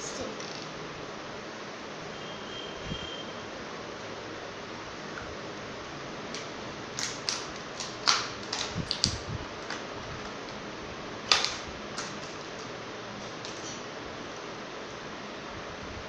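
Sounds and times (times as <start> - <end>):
plastic pieces clicking in tray: 6.4 - 10.6.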